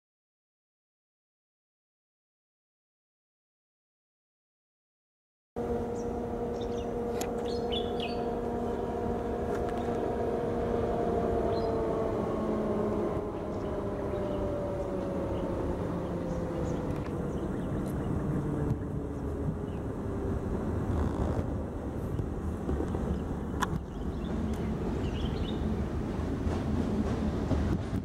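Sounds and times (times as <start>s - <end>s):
diesel locomotive engine drone: 5.6s - 28.0s
bird chirps: 5.9s - 8.9s, 13.4s - 19.9s, 23.8s - 25.7s.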